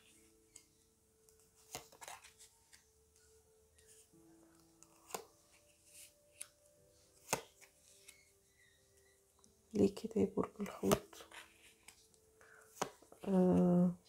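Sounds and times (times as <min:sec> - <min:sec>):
faint sustained background tones: 0:00.0 - 0:14.0
cards clicking on a table: 0:12.7 - 0:13.3.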